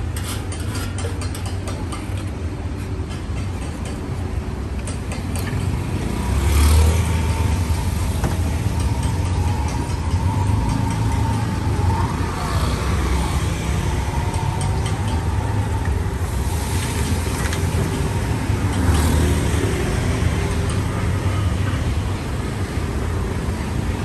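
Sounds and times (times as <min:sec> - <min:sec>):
car and motorbike engines passing: 0:05.4 - 0:24.0.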